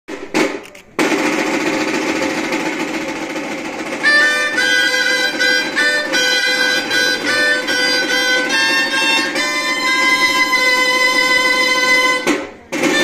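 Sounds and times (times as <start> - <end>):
snare drum roll: 0.1 - 13.0
shawms playing shrill melody: 3.4 - 13.0.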